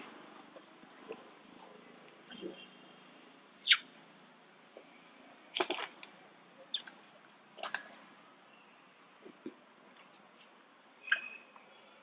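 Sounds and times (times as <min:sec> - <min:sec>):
monkey chirps: 0:03.6 - 0:04.0, 0:11.0 - 0:11.5.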